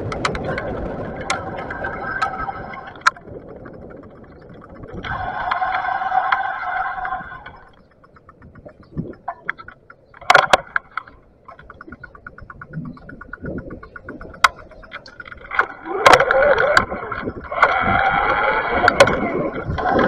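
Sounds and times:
bicycle freewheel ticking: 0.0s - 20.0s
steady whine: 0.0s - 20.0s.

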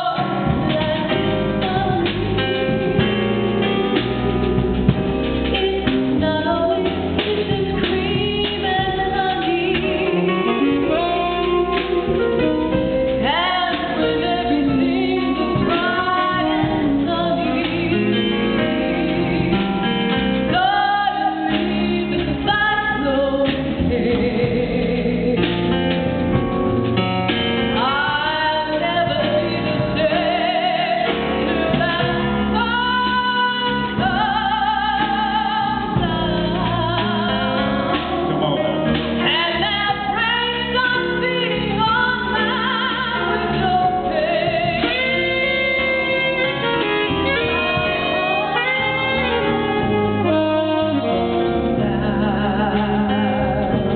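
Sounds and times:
woman singing blues: 0.0s - 3.1s, 5.4s - 26.0s, 27.8s - 53.9s
band accompaniment: 0.0s - 53.9s.

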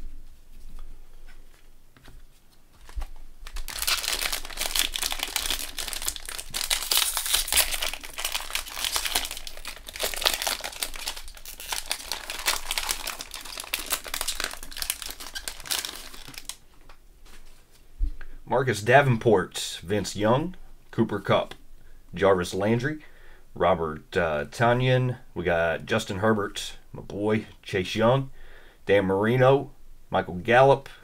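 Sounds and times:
wrappers tearing and crinkling: 2.9s - 16.6s.

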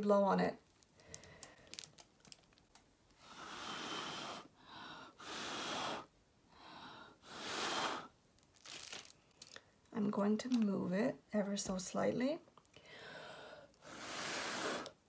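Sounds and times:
breath puffs through a straw: 3.2s - 6.1s, 7.1s - 8.1s, 13.8s - 15.0s.

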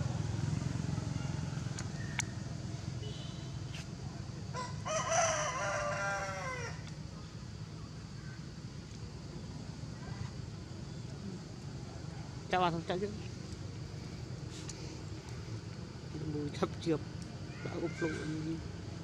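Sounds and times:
rooster crowing: 4.5s - 6.9s.

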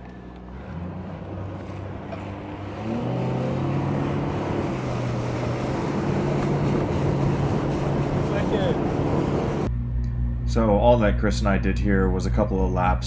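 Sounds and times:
outboard motor speeding up: 0.0s - 10.3s
water rushing along hull: 1.5s - 9.7s.

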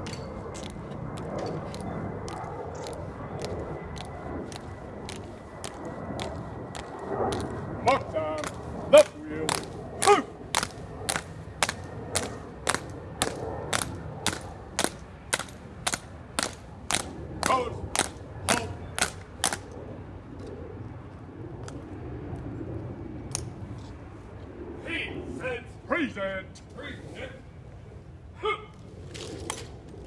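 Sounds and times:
marching footsteps on stone: 0.6s - 7.7s.

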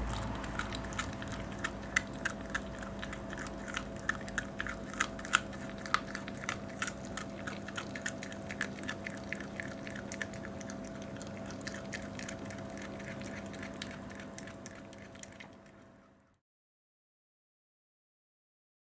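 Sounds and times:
dog chewing and crunching bone: 0.0s - 16.1s
steady low hum: 0.0s - 16.3s.

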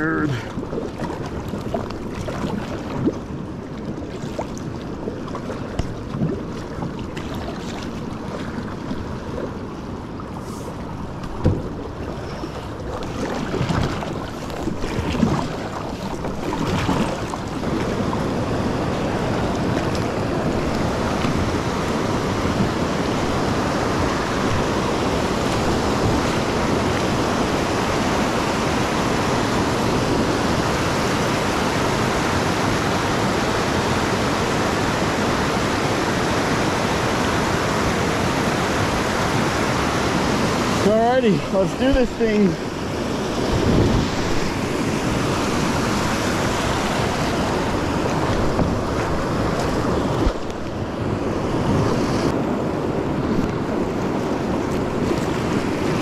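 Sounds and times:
rushing river rapids: 12.2s - 56.0s.

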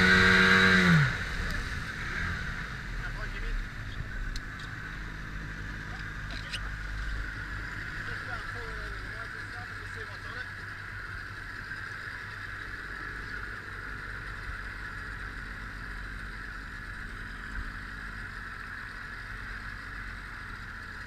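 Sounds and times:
outboard motor idling: 0.0s - 21.0s.

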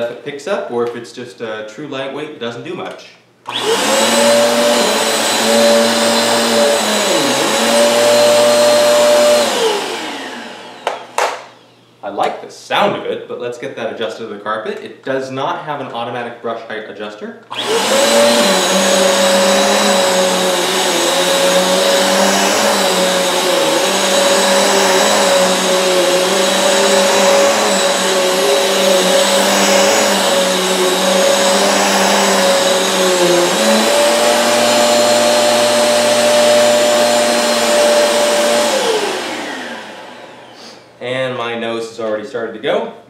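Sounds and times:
vacuum cleaner on carpet: 3.5s - 11.7s, 17.5s - 40.9s.

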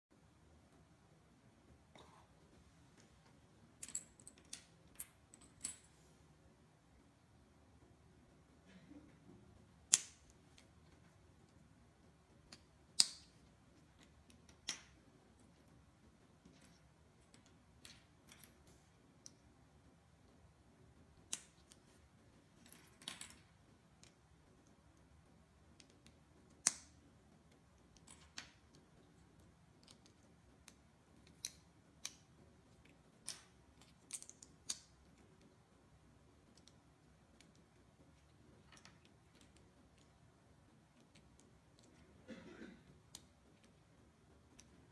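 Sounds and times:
plastic bricks clicking together: 3.8s - 5.9s, 9.8s - 11.6s, 12.2s - 19.5s, 21.1s - 21.9s, 25.7s - 35.6s.

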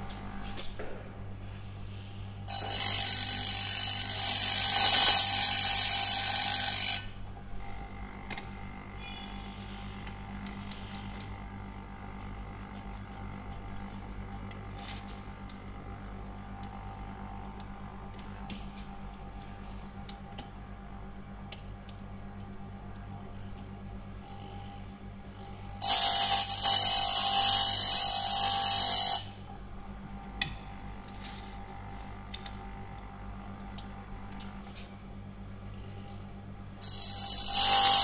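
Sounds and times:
grinding wheel screeching: 2.5s - 7.2s, 25.8s - 29.3s, 36.8s - 38.0s
chain sharpener humming: 2.5s - 8.0s, 25.4s - 29.5s, 35.6s - 38.0s.

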